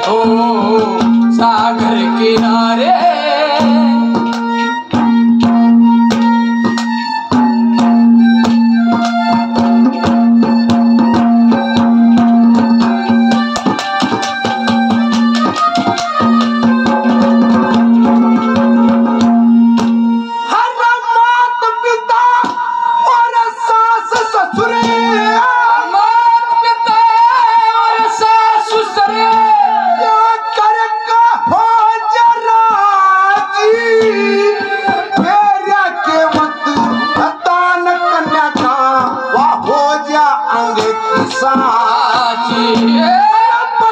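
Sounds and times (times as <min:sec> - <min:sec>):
man singing: 0:00.0 - 0:05.0, 0:20.4 - 0:43.9
harmonium melody: 0:00.0 - 0:43.9
instrumental accompaniment: 0:00.0 - 0:43.9
fast hand-drum strokes: 0:04.9 - 0:20.1.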